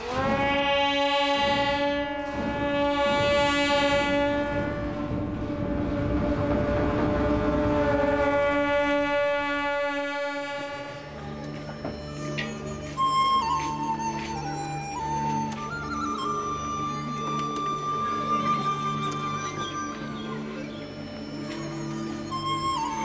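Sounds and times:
blaring horn note: 0:00.0 - 0:11.2
low steady drone: 0:00.0 - 0:23.0.

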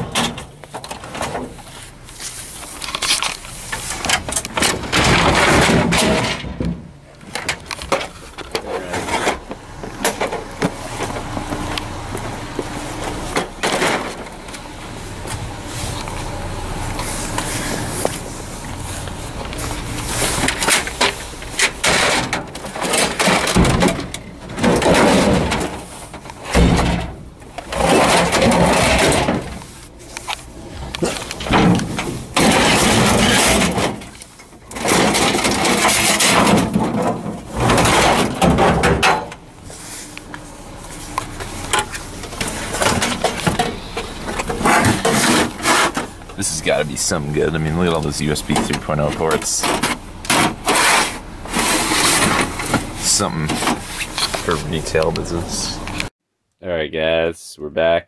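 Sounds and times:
electronics clattering in metal dumpster: 0:00.0 - 0:01.6, 0:02.7 - 0:15.5, 0:19.4 - 0:40.0, 0:41.0 - 0:55.8
rough scraping and rustling: 0:00.0 - 0:06.6, 0:07.2 - 0:56.1
sharp knocks and clunks: 0:20.4 - 0:29.6.

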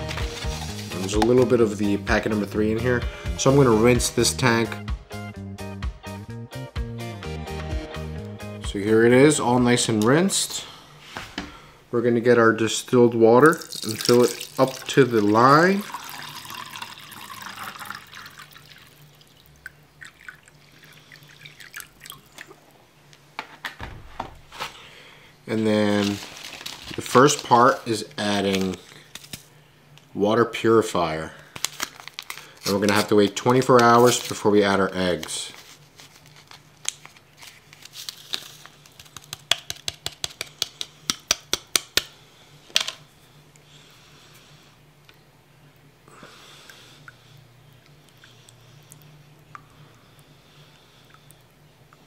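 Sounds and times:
paper sachet crinkling: 0:00.0 - 0:01.7, 0:25.7 - 0:29.5, 0:31.5 - 0:40.4
water dripping: 0:13.5 - 0:22.6
water pouring into plastic tank: 0:13.5 - 0:22.6.

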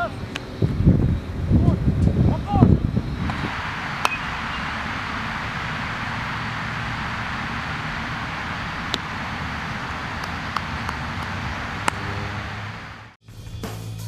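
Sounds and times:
outdoor hiss: 0:00.0 - 0:13.2
bat hitting baseball: 0:03.2 - 0:12.6
ringing ping: 0:03.9 - 0:04.7.

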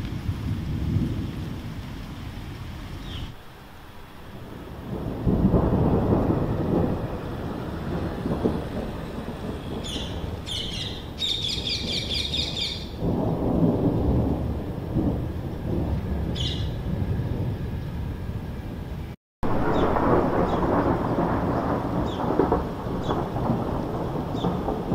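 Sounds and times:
thunder rumbling: 0:00.0 - 0:24.9
bird chirping and trilling: 0:09.2 - 0:13.0, 0:16.3 - 0:16.8.

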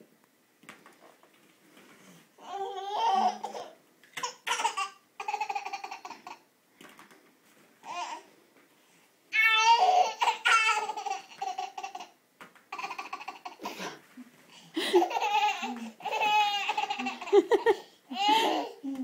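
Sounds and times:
baby laughing: 0:02.4 - 0:06.4, 0:09.4 - 0:14.0, 0:14.7 - 0:18.8.

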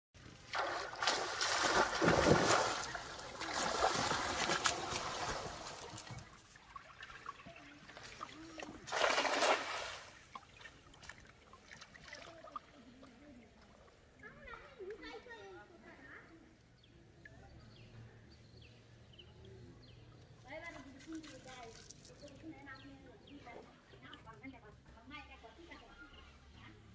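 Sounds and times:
water streaming off a net: 0:00.4 - 0:10.9
net splashing onto water: 0:00.4 - 0:12.7.

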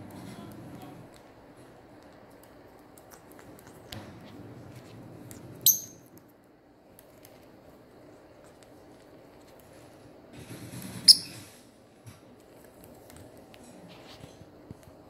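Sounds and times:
parrot chirp: 0:05.6 - 0:06.0.

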